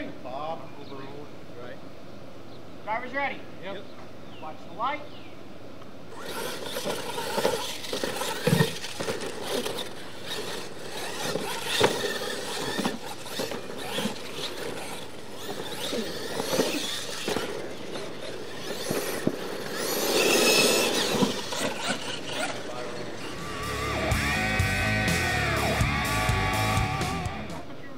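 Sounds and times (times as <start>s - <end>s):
tyres scrabbling on dirt: 6.1s - 26.0s
toy truck motors whining: 6.1s - 27.8s
trucks landing with knocks: 6.2s - 22.6s.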